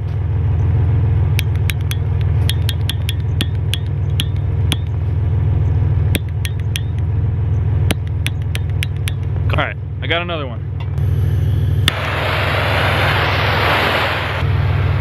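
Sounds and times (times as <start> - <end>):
car engine idling: 0.0 - 12.8
torch igniter clicking: 1.4 - 5.0.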